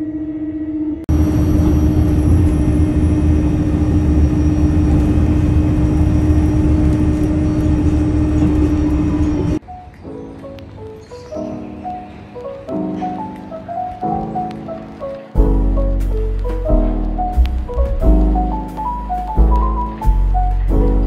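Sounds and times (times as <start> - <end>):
constant hum: 0.0 - 9.6
vehicle cabin rumble: 1.1 - 9.6.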